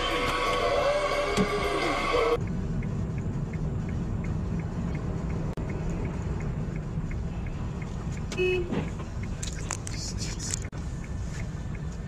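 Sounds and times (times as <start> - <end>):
car engine and tyre rumble: 0.0 - 12.0
faint regular ticking: 2.4 - 12.0.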